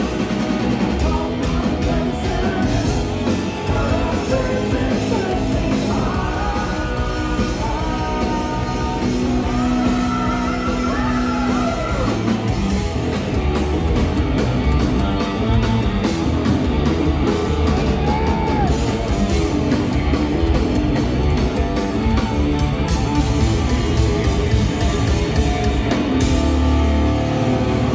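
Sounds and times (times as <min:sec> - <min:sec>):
bass guitar: 0:00.0 - 0:27.9
drums: 0:00.0 - 0:27.9
electric guitar: 0:00.0 - 0:27.9
person singing: 0:00.1 - 0:12.3.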